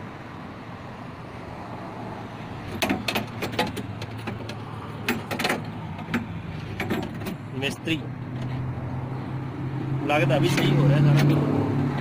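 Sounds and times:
tools clicking and knocking: 2.7s - 7.4s.

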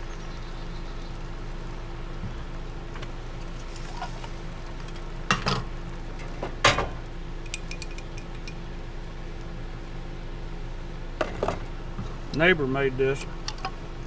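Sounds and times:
steady low hum: 0.0s - 14.0s
spoon clinking against glass: 7.5s - 8.6s.

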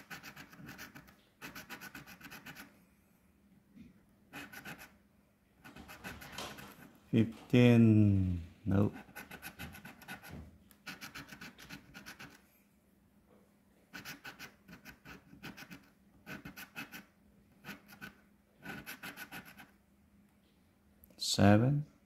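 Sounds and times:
coin scratching lottery ticket: 0.0s - 2.7s, 4.3s - 5.0s, 5.6s - 6.8s, 8.8s - 12.4s, 13.9s - 19.7s.

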